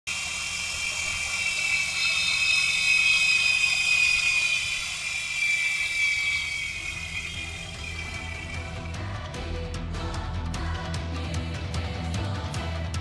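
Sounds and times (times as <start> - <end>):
helicopter whir: 0.1 - 9.5.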